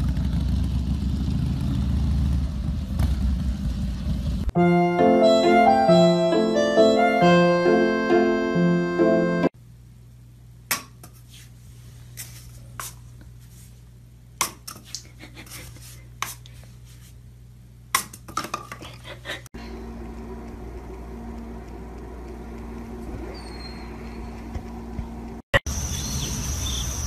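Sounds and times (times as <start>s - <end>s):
low room hum: 8.6s - 25.4s.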